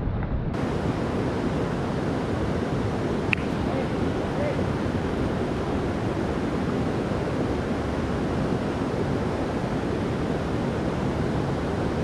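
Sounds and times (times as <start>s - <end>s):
creek water rushing: 0.6s - 12.0s.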